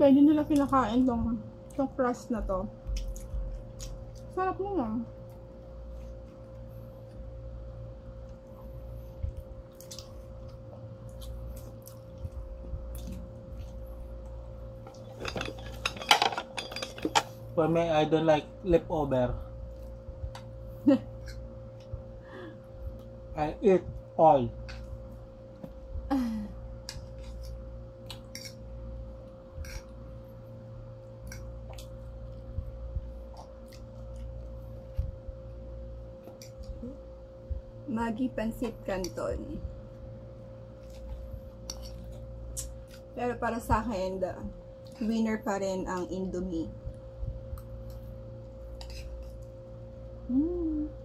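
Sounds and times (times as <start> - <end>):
low hum: 0.0 - 51.0
chewing pizza crust: 2.8 - 4.4, 8.2 - 15.4, 31.1 - 35.4, 40.6 - 43.2
chewing mouth sounds: 9.3 - 13.8.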